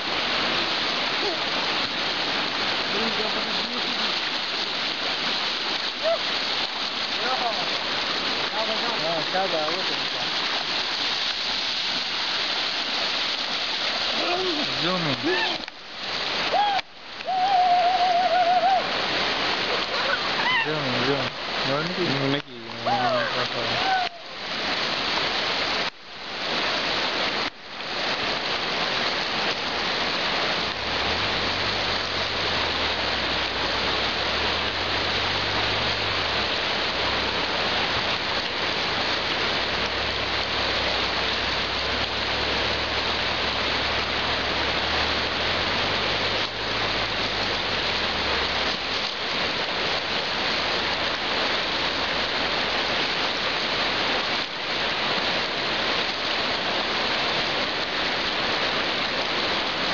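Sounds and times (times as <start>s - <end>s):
river water rushing: 0.0s - 59.9s.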